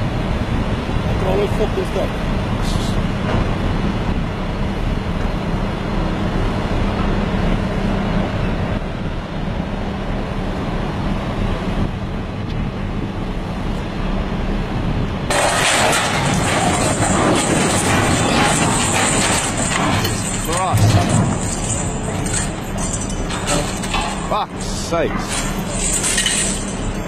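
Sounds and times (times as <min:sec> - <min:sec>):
diesel engine running: 0:00.0 - 0:27.0
harsh machine noise: 0:15.3 - 0:27.0.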